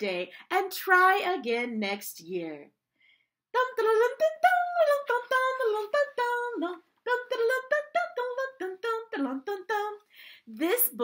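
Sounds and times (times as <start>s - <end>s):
woman singing wordless tune: 3.5s - 11.0s.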